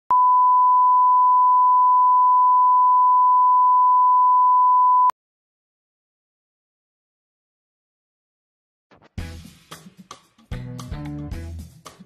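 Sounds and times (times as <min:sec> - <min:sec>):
reference tone beep: 0:00.1 - 0:05.2.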